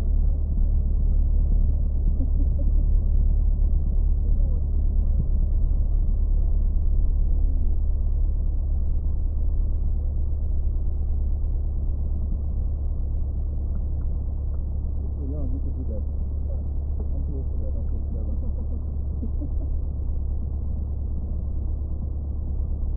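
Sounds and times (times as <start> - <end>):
propeller aircraft engine drone: 0.0 - 22.9.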